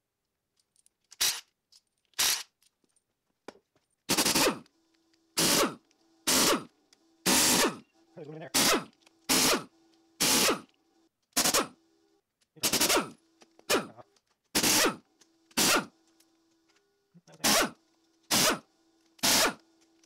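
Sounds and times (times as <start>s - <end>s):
impact wrench hammering: 5.4s - 6.7s, 8.6s - 10.7s, 11.4s - 11.8s, 12.6s - 13.9s, 14.6s - 15.9s.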